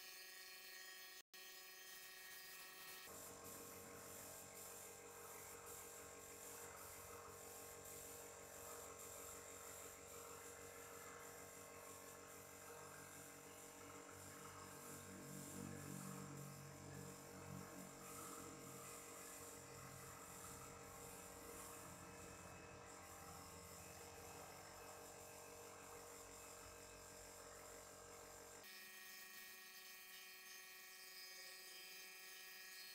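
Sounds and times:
air compressor humming: 2.7s - 28.7s
spray gun air hiss: 3.0s - 28.6s.

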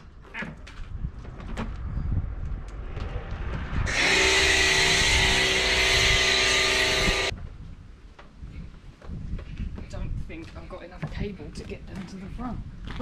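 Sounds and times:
pressure washer motor whine: 3.9s - 7.3s.

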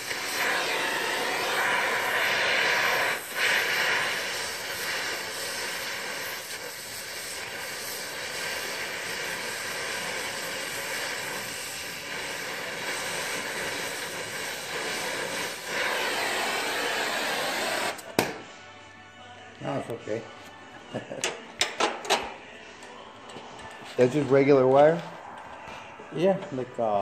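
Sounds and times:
welding torch flame hissing: 0.0s - 18.2s.

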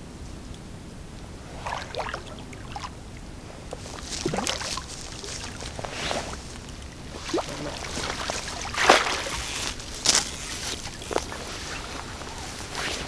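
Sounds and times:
fish splashing in water: 1.4s - 13.0s.

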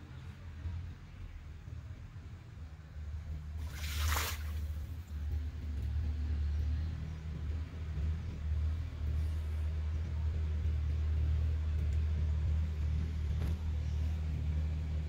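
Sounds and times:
water splash: 3.6s - 5.0s.

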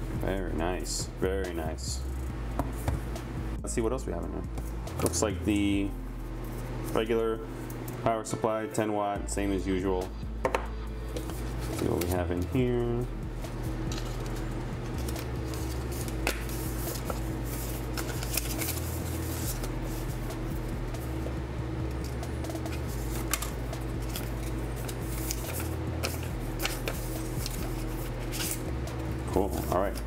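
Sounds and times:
low hum: 0.0s - 8.3s, 9.2s - 30.0s
paper and cardboard rustling: 11.2s - 12.6s, 13.9s - 20.2s, 22.0s - 28.7s.

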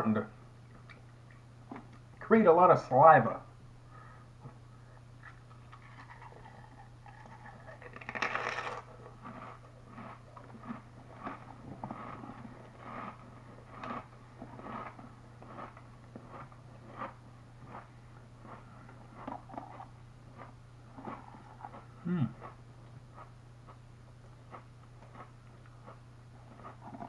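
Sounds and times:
low steady hum: 0.0s - 27.0s
potato crisp crunching: 5.4s - 23.8s.

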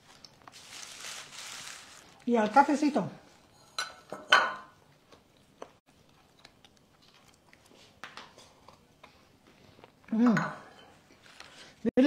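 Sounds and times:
dishes clicking and tapping: 3.8s - 4.7s, 10.3s - 11.0s.

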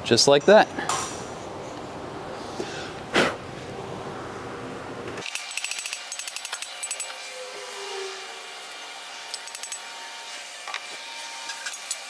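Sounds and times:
hammer tapping metal: 9.3s - 9.8s.

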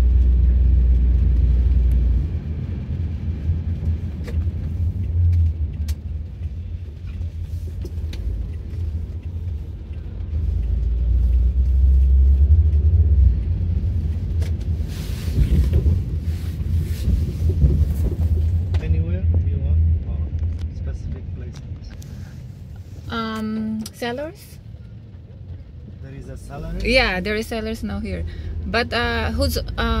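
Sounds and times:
car cabin road drone: 0.0s - 30.0s
faint ticks: 5.0s - 12.9s.

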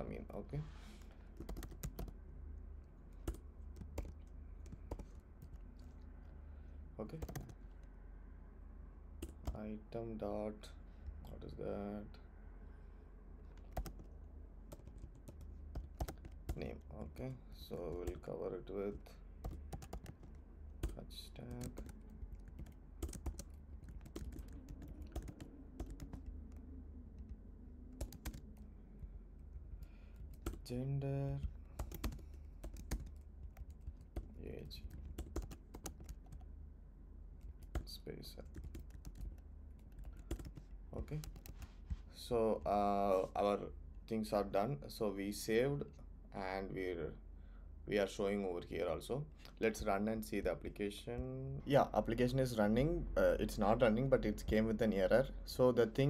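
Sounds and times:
low steady hum: 0.0s - 56.0s
computer keyboard typing: 1.4s - 2.2s, 3.2s - 5.6s, 7.2s - 7.8s, 13.6s - 14.1s, 14.7s - 16.6s, 19.4s - 26.6s, 28.0s - 28.6s, 30.2s - 30.7s, 31.7s - 36.4s, 37.4s - 41.6s.

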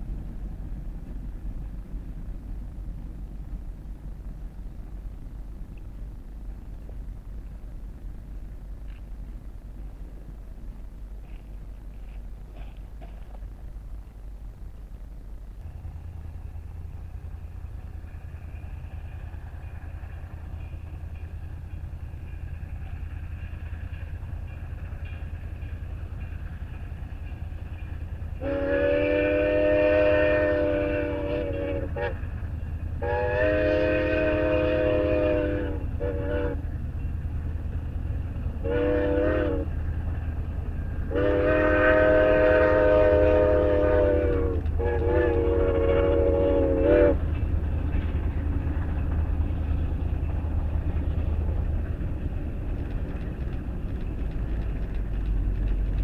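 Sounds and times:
steady low rumble: 0.0s - 56.0s
steam whistle blasts: 28.4s - 32.2s, 33.0s - 36.7s, 38.6s - 39.7s, 41.1s - 47.2s.

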